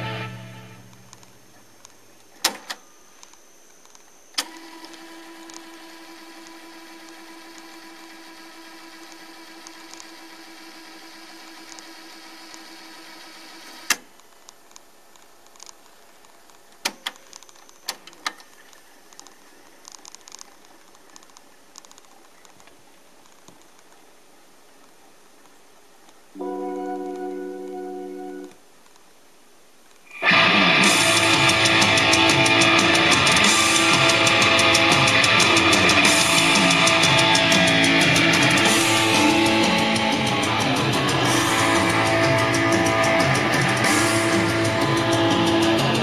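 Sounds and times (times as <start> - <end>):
tape rewinding motor whine: 0.0 - 14.1, 30.2 - 46.0.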